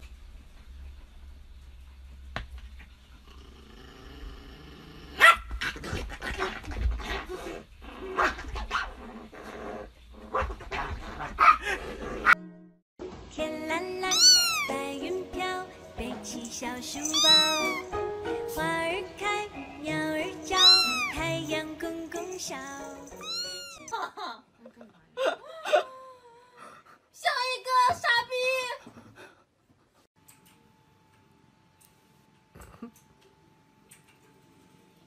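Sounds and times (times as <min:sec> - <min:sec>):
dog barking: 0:05.2 - 0:05.5
kitten meowing: 0:14.1 - 0:14.8, 0:17.0 - 0:18.0, 0:20.6 - 0:21.2, 0:23.2 - 0:23.9.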